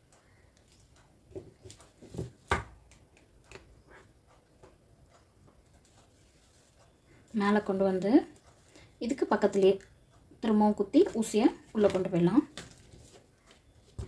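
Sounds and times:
cloth rustling: 0:05.7 - 0:07.0.

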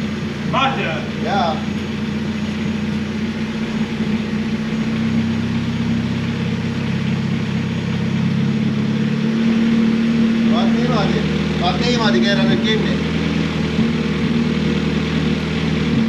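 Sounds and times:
race car engine idling: 0:00.0 - 0:16.0.

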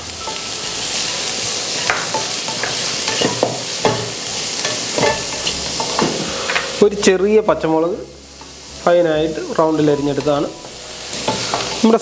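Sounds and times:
vegetables sizzling in oil: 0:00.0 - 0:12.0
spatula scraping pan: 0:01.7 - 0:06.8, 0:11.1 - 0:11.9.

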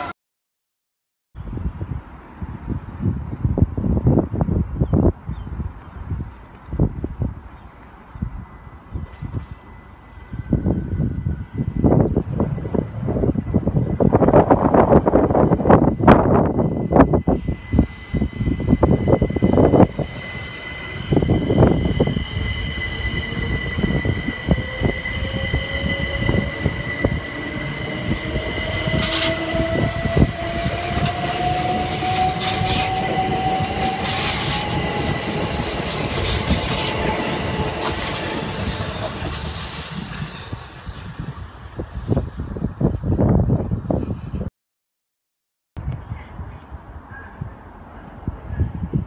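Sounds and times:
electric train motors whining: 0:08.7 - 0:43.0
wheels squealing and clattering: 0:17.4 - 0:44.5.

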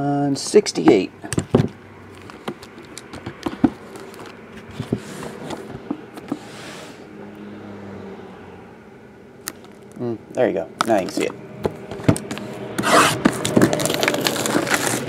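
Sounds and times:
plastic wrap rustling: 0:02.0 - 0:06.4, 0:11.9 - 0:15.0.

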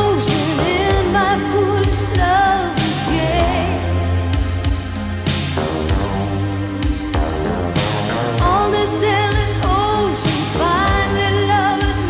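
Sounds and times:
person singing: 0:00.0 - 0:04.5, 0:08.4 - 0:12.0
pop song with drums and bass: 0:00.0 - 0:12.0.

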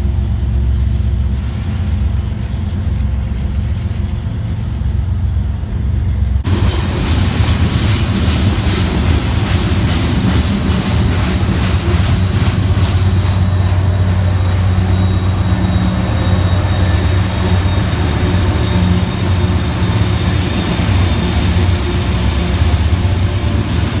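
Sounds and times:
diesel locomotive drone: 0:00.0 - 0:24.0
wheels clicking over rail joints: 0:06.0 - 0:24.0.

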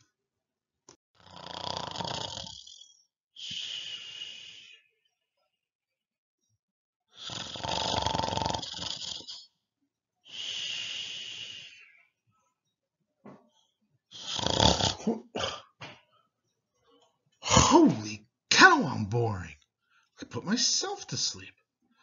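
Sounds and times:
man mock snoring: 0:01.2 - 0:02.8, 0:07.2 - 0:09.4, 0:14.2 - 0:15.6.

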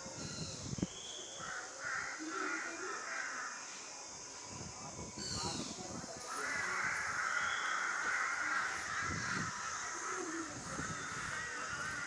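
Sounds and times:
steady high hiss: 0:00.0 - 0:12.0
crows cawing: 0:06.3 - 0:12.0.

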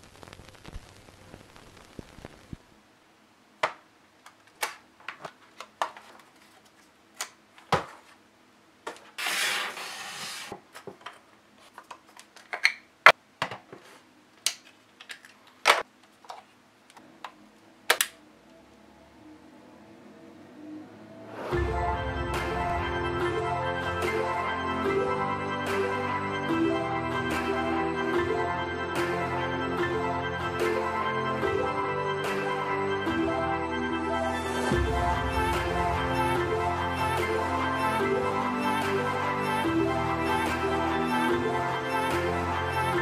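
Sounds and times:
faint static crackle: 0:00.0 - 0:09.1.

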